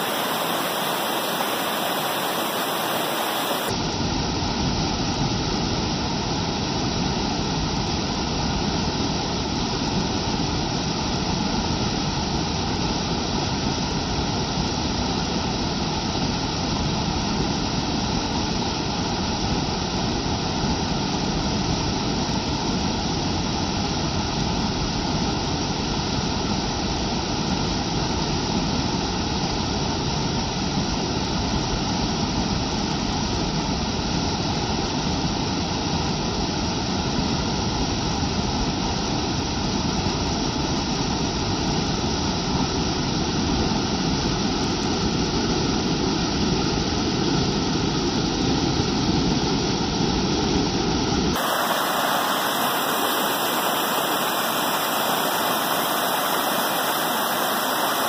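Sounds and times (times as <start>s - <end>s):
waterfall rushing over rocks: 0.0s - 3.8s, 51.4s - 58.0s.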